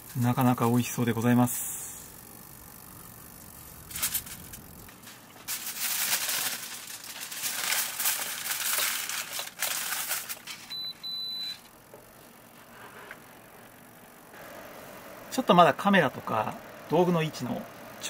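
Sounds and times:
plastic packaging crinkling: 3.8 - 10.9.

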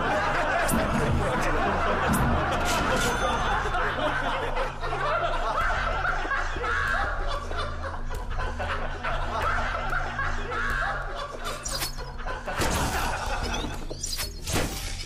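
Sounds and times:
low droning background music: 0.0 - 15.0
person laughing: 3.9 - 13.8.

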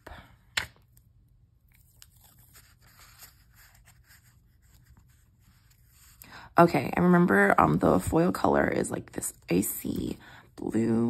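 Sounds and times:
tape crackling and rustling: 0.5 - 6.4.

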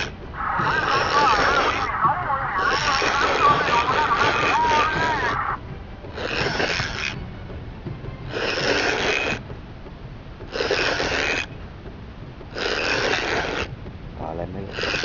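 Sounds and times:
low steady rumble: 0.0 - 14.8
fishing reel whirring: 6.2 - 7.2, 8.3 - 9.4, 10.5 - 11.5, 12.6 - 13.7, 14.7 - 15.0.

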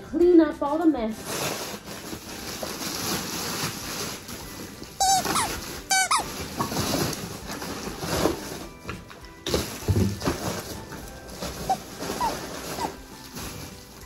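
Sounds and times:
wrapping paper rustling: 1.0 - 14.0
squeaky dog toy squeaking: 5.0 - 6.9, 11.6 - 13.1.

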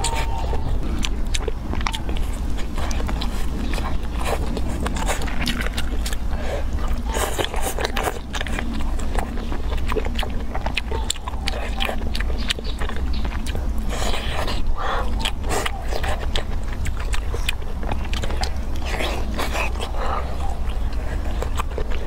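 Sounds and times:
person chewing food: 0.0 - 22.0
steady low hum: 0.0 - 22.0.

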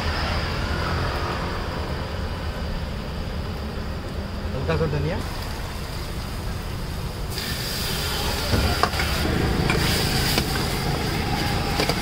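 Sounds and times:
sizzling hiss: 3.1 - 12.0
water pouring into hot pan: 5.2 - 12.0.

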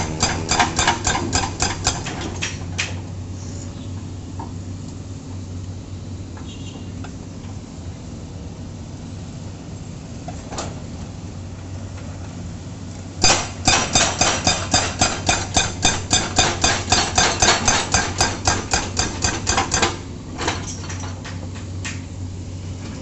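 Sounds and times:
hydraulic breaker hammering concrete: 0.0 - 2.6, 13.2 - 20.0
diesel engine running: 0.0 - 23.0.

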